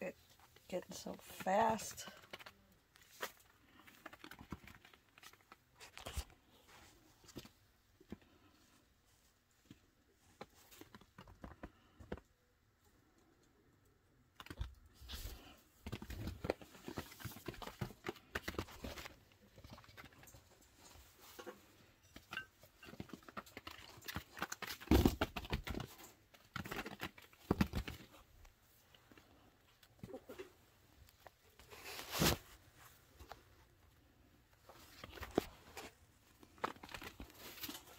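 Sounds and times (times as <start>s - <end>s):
soft rustles: 25.8s - 37.9s.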